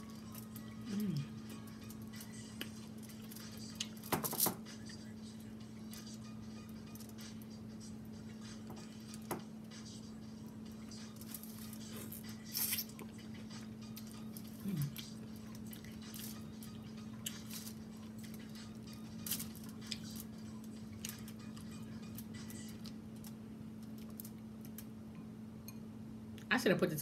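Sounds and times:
steady low hum: 0.0 - 27.0
person humming mm: 0.8 - 1.5, 14.6 - 15.2.

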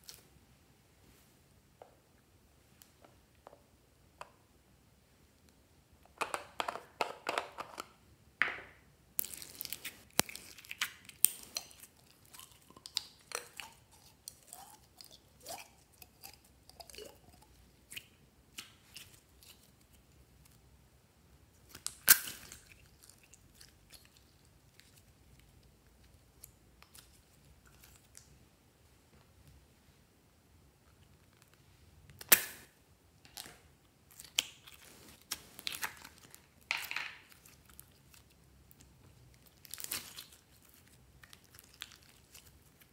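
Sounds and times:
slime squelching: 9.2 - 20.6, 33.3 - 42.9
sticky slime crackles and pops: 37.3 - 42.9.

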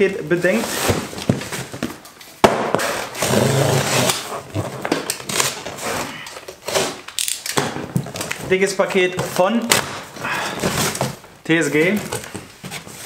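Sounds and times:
cardboard and tape rustling: 0.0 - 13.0
knock on cardboard parcel: 2.4 - 2.9.

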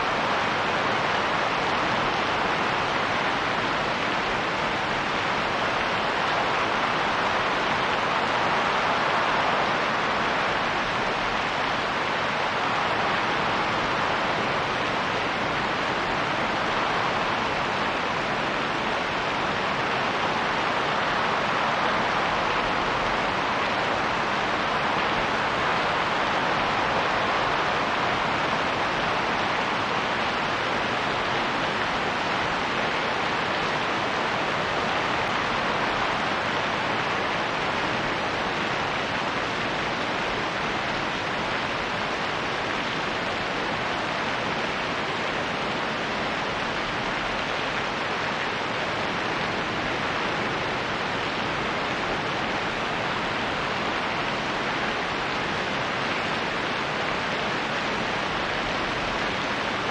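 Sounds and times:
rain falling: 0.0 - 59.9
wind: 0.0 - 59.9.

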